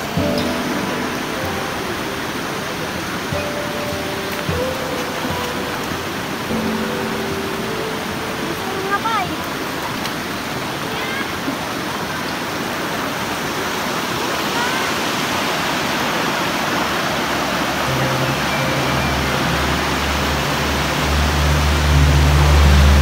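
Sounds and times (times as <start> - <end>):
stream rushing over rocks: 0.0 - 23.0.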